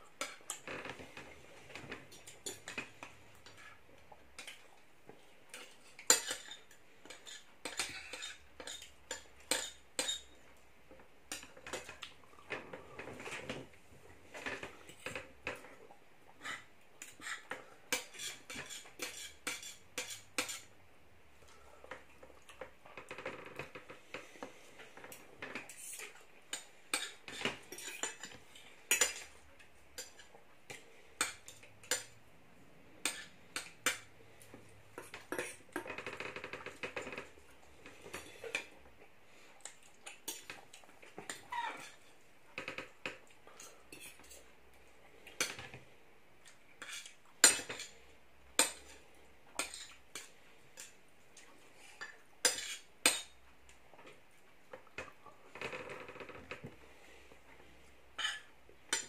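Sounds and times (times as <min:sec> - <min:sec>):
cutlery clinking on plates: 0:01.7 - 0:02.9, 0:05.6 - 0:10.4, 0:16.5 - 0:20.7, 0:25.1 - 0:29.3, 0:30.0 - 0:32.2, 0:46.8 - 0:48.0, 0:52.0 - 0:53.4, 0:58.2 - 0:59.0.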